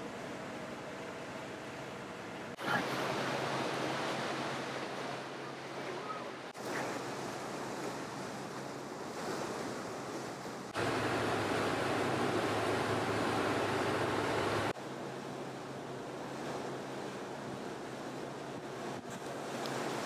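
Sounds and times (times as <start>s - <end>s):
churning wake water: 0.0s - 20.0s
diesel engine drone: 10.8s - 14.8s.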